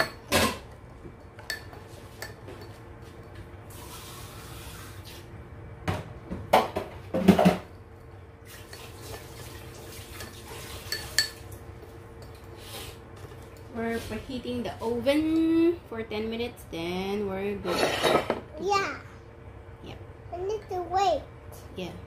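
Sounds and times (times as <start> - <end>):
spoon clinking in ceramic bowl: 10.9 - 11.4.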